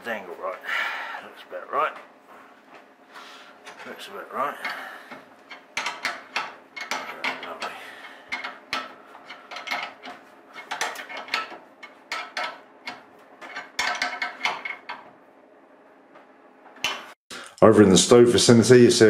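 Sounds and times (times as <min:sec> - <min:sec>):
spanner clicking and scraping on pipe: 0:03.5 - 0:15.1.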